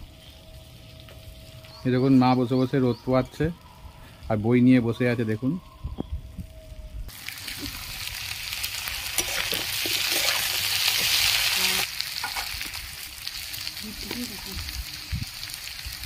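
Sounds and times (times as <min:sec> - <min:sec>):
vegetables sizzling in oil: 0:07.1 - 0:16.0
spatula scraping pan: 0:09.2 - 0:11.2.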